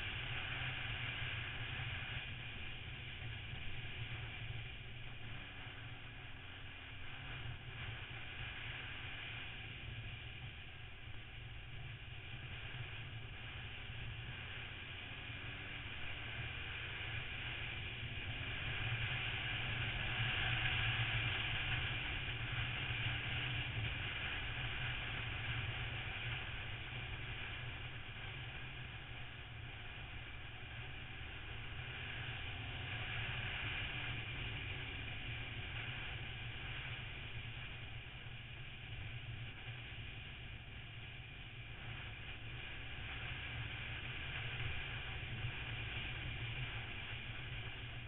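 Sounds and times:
motorcycle engine drone: 0.0 - 48.0.

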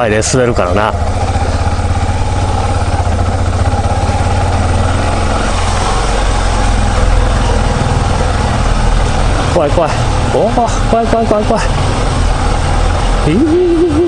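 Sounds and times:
motorcycle engine running at low revs: 0.0 - 14.0.

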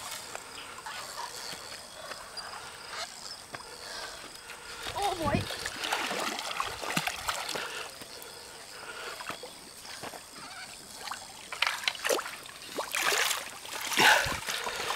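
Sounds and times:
fish splashing in water: 5.5 - 8.0, 11.0 - 14.9.

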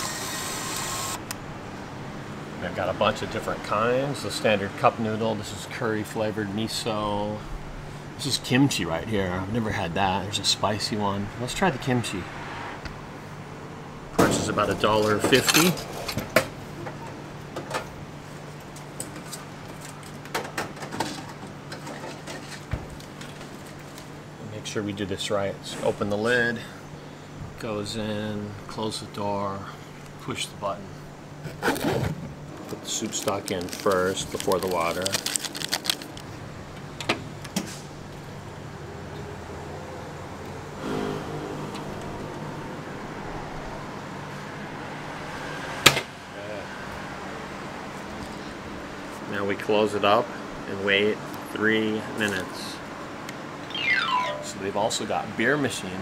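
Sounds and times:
vending machine hum: 0.0 - 4.0, 30.3 - 45.4, 52.8 - 55.5.

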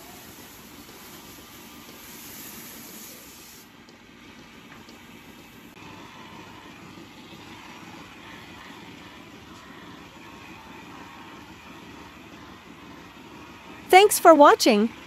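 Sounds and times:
pressure washer spraying water: 0.0 - 3.7.

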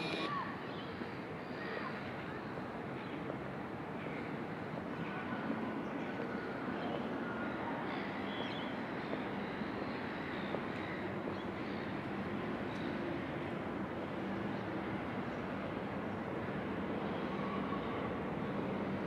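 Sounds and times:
engines humming: 0.0 - 0.3
faint high tones: 0.0 - 0.3.

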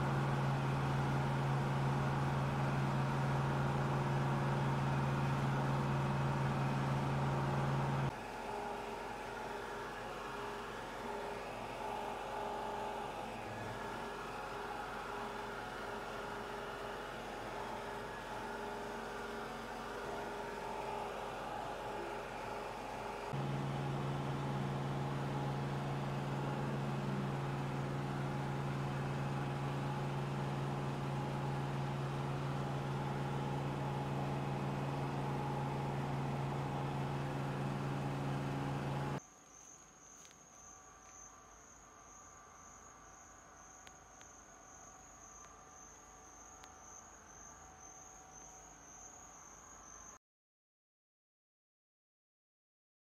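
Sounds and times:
motor humming: 0.0 - 39.2
insect trilling: 39.2 - 50.2.

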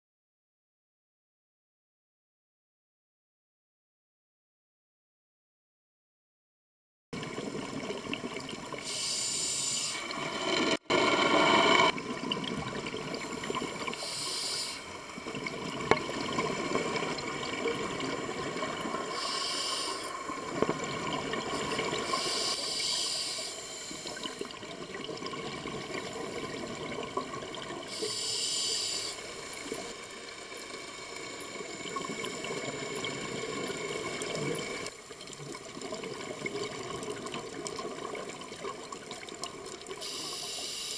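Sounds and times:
underwater hiss: 8.8 - 11.9, 13.0 - 24.7, 25.5 - 34.9, 39.9 - 40.9
exhaled bubbles rushing: 10.1 - 14.0, 15.1 - 19.1, 20.2 - 22.2.

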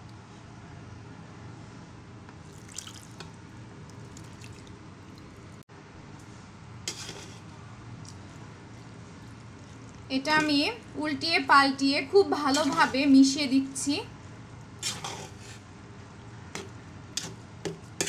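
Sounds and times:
wet dripping of gravy: 2.5 - 3.3, 3.9 - 5.3
spoon scraping pot: 6.9 - 7.4, 12.4 - 13.1, 14.8 - 15.6, 16.5 - 18.0.

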